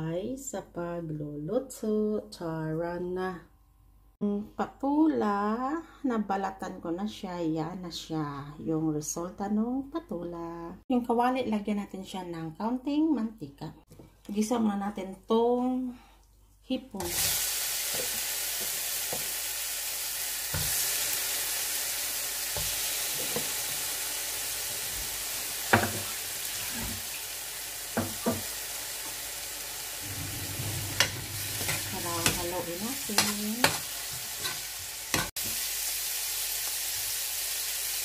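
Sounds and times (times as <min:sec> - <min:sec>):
shrimp sizzling in oil: 0:17.0 - 0:38.0.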